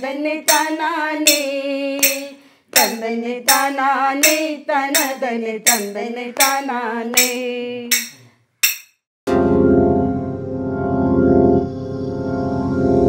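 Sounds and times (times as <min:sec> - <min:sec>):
sharp metallic clink: 0:07.2 - 0:09.0.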